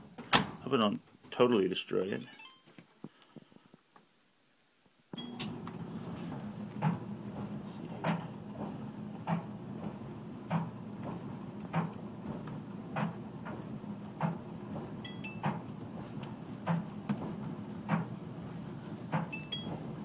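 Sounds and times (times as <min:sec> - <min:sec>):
clothes dryer humming: 0:00.0 - 0:01.9, 0:05.2 - 0:20.0
object thudding in dryer drum: 0:05.6 - 0:18.2, 0:19.0 - 0:19.9.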